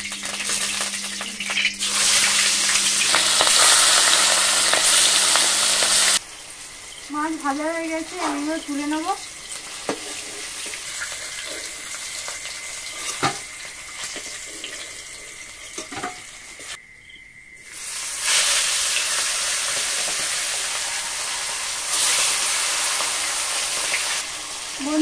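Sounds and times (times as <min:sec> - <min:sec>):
fish sizzling in oil: 0:00.0 - 0:16.8, 0:17.6 - 0:25.0.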